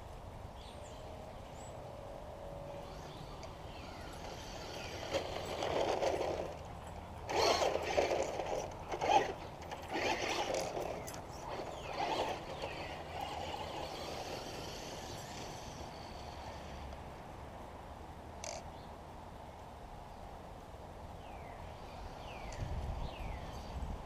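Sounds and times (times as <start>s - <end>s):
toy car motor accelerating: 2.8s - 16.9s.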